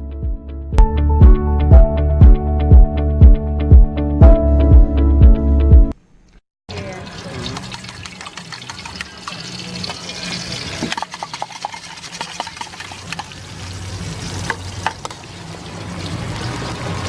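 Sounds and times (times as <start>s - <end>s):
egg sizzling in hot oil: 6.7s - 17.0s.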